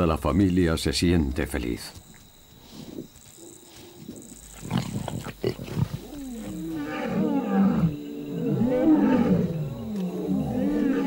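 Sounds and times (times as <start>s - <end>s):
lion roaring: 4.6s - 11.0s.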